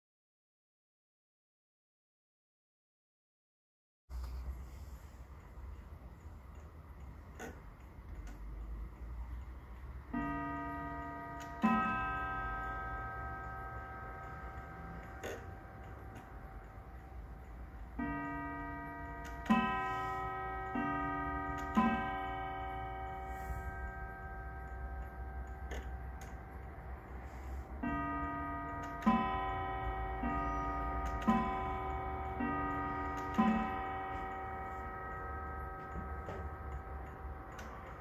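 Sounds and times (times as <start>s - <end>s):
clock ticking: 4.5s - 38.0s
clock gongs striking ding-dong: 9.3s - 38.0s.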